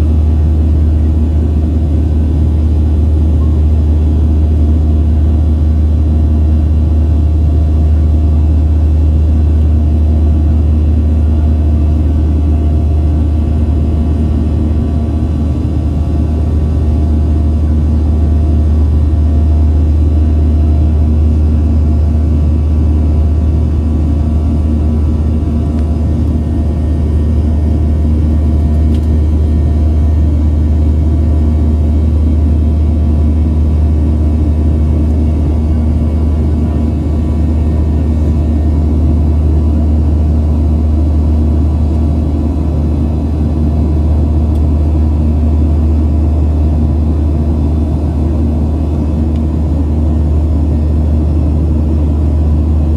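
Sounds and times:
airliner cabin engine drone: 0:00.0 - 0:52.9.

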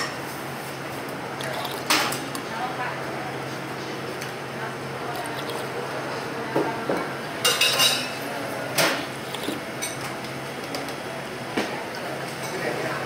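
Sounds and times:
restaurant background hum: 0:00.0 - 0:13.0
spoon scraping ceramic bowl: 0:01.4 - 0:02.2, 0:05.1 - 0:05.8, 0:09.0 - 0:10.0.

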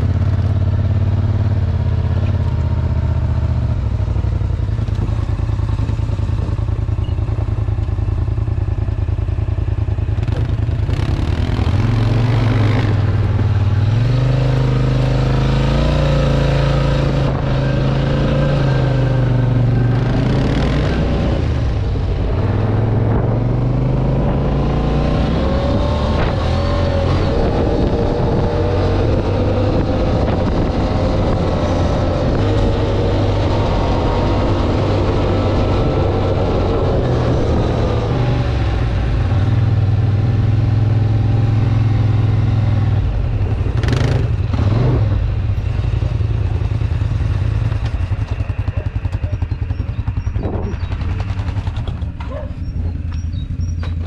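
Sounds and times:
vehicle engine revving under load: 0:10.2 - 0:43.0.

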